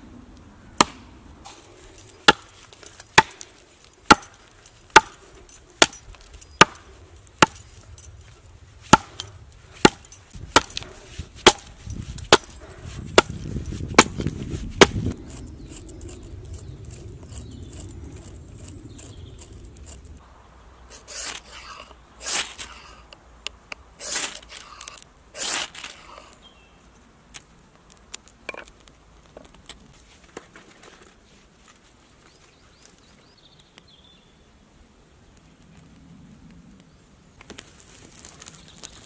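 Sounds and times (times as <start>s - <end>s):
hatchet chopping a log: 0.8s - 1.1s, 2.2s - 5.2s, 5.8s - 7.6s, 8.8s - 15.4s.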